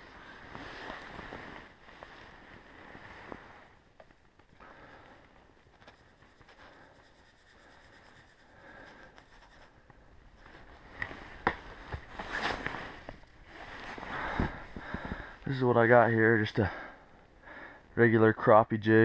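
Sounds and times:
fabric rubbing on microphone: 0.3 - 3.8, 5.8 - 8.5, 10.4 - 14.8.

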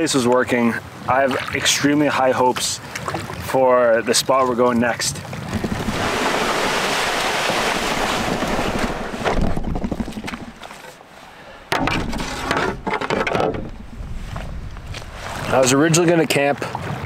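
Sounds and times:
wind on microphone: 5.2 - 10.8, 11.9 - 15.9
footsteps crackling on dry brush: 13.9 - 15.6.

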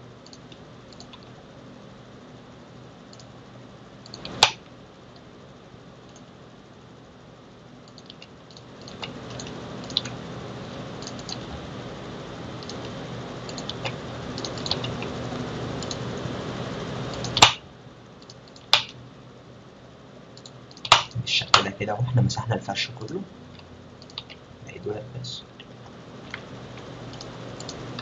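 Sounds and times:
loud sharp clicks: 4.0 - 4.6, 17.1 - 17.6, 18.2 - 19.0, 20.4 - 21.7
steady hiss: 8.1 - 28.0
mouse and keyboard clicks: 13.5 - 15.1.

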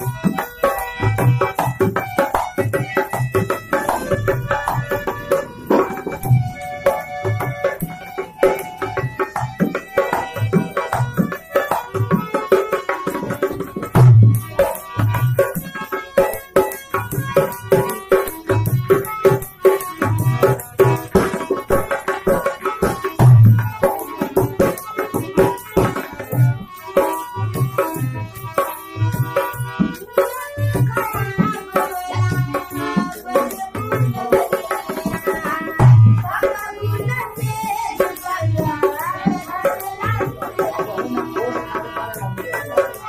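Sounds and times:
dholak drum beating: 0.0 - 43.0
harmonium melody: 0.0 - 43.0
woman singing: 29.9 - 43.0.

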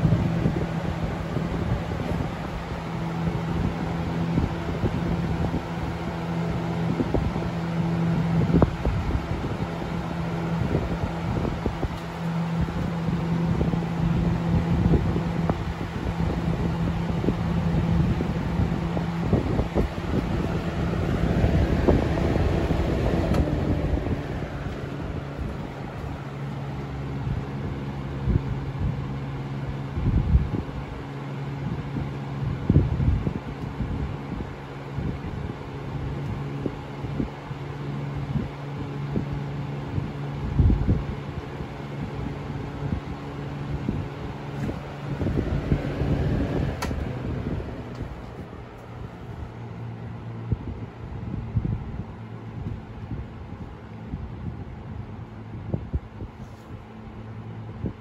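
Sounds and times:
rush of air: 0.0 - 29.1, 42.3 - 49.8
box fan motor humming: 0.0 - 58.0
wind buffeting microphone: 0.0 - 58.0.

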